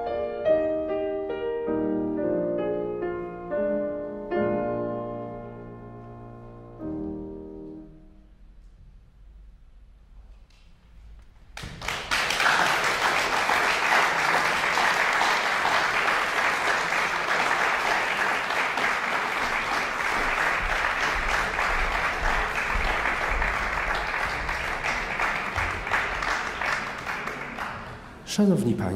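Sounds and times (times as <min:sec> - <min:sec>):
audience applause: 0:11.6 - 0:28.3.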